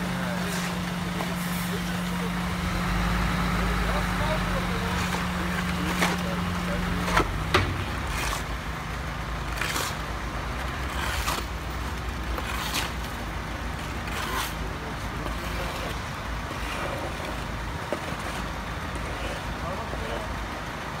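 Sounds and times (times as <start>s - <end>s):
shovels scraping wet concrete: 0.0s - 20.3s
low engine hum: 0.0s - 21.0s.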